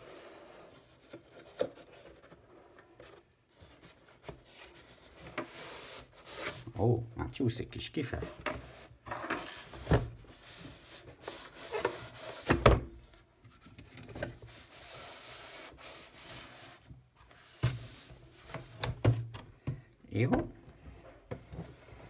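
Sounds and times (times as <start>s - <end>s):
cardboard and plastic scraping: 0.0s - 6.8s, 8.2s - 12.9s, 21.2s - 22.0s.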